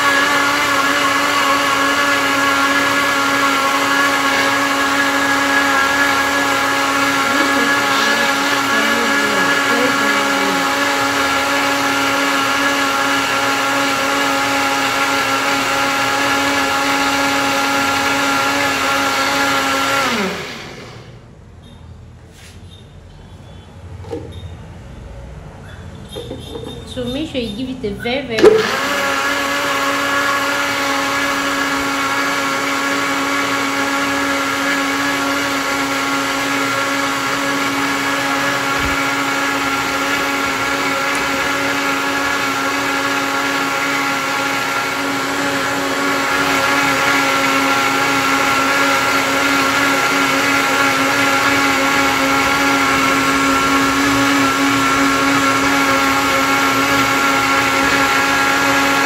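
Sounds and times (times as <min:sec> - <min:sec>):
blender motor whining: 0:00.0 - 0:21.2, 0:28.3 - 0:59.0.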